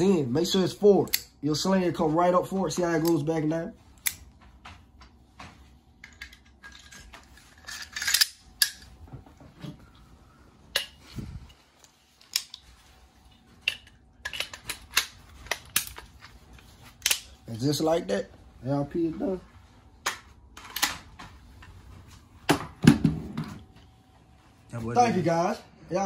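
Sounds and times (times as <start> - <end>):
metal parts clicking and clacking: 6.0 - 8.9, 10.7 - 12.6, 13.6 - 16.3.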